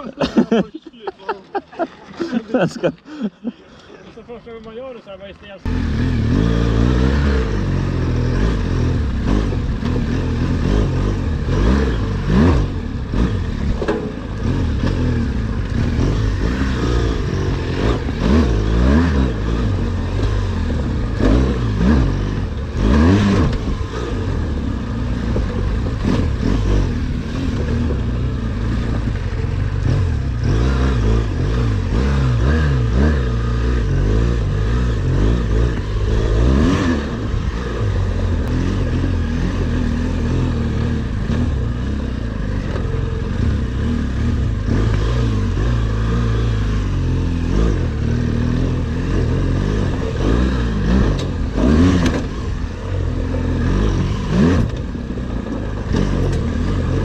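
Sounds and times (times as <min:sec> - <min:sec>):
motorcycle engine revving: 0:05.4 - 0:57.0
knocks and rattles: 0:13.6 - 0:15.8.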